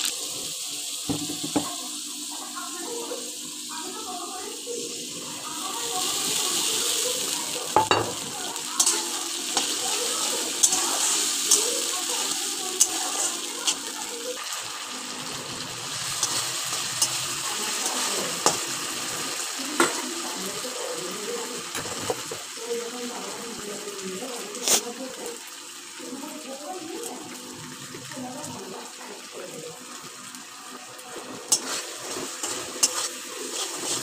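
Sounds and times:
food sizzling in hot oil: 0.0s - 34.0s
metal spatula scraping wok: 8.2s - 13.9s, 31.3s - 34.0s.

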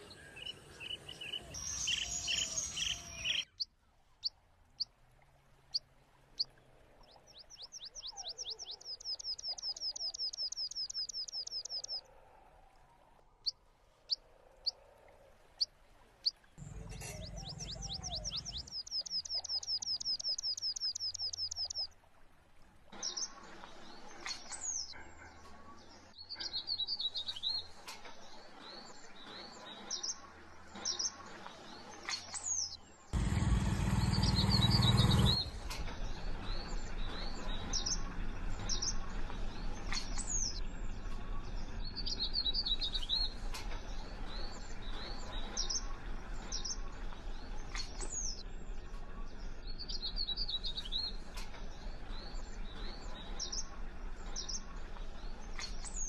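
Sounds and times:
small birds chirping: 0.0s - 3.7s, 6.4s - 12.0s, 15.6s - 21.9s, 23.0s - 56.0s
steady low rumble: 16.6s - 18.8s.

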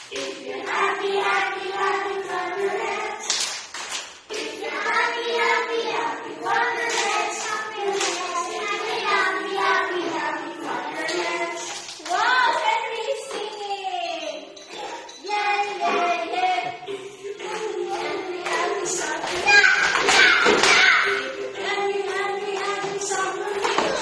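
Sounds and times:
children singing: 0.0s - 3.5s, 4.2s - 24.0s
adult leading singing: 0.0s - 3.6s, 4.2s - 24.0s
hand clapping: 3.2s - 4.6s, 6.8s - 9.0s, 22.0s - 24.0s.

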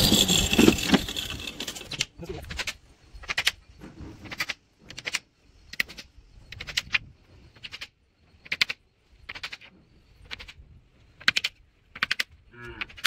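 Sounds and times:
sharp clicks: 4.2s - 7.0s, 7.6s - 10.6s, 11.2s - 13.0s.

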